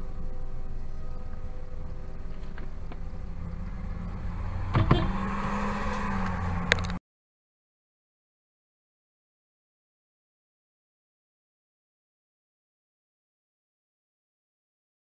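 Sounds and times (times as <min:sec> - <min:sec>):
ambulance driving past: 0:00.0 - 0:07.0
car engine hum: 0:00.0 - 0:07.0
knocks and a click: 0:04.7 - 0:05.6.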